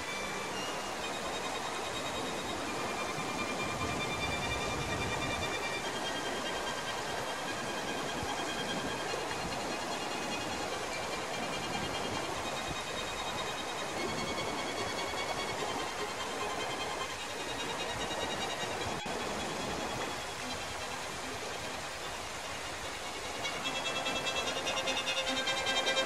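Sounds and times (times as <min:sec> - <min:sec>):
stream flowing over stones: 0:00.0 - 0:26.0.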